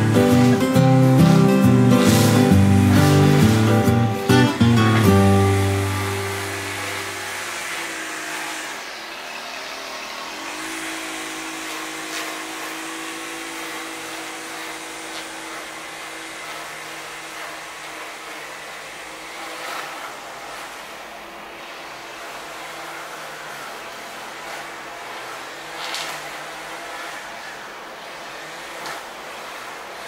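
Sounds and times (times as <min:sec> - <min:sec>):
motor engine running: 0:00.0 - 0:11.3.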